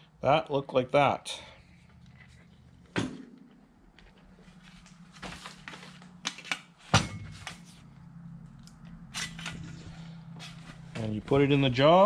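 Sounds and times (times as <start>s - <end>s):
steady low hum: 0.0s - 12.0s
sharp metal clunk: 6.9s - 7.5s.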